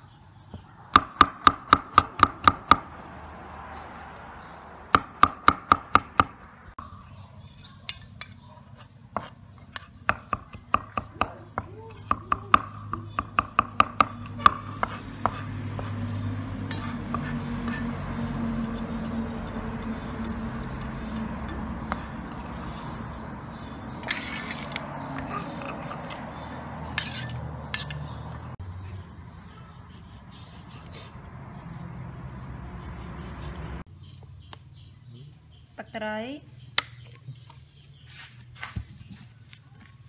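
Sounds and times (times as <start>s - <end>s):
blade scraping on board: 24.0s - 28.1s.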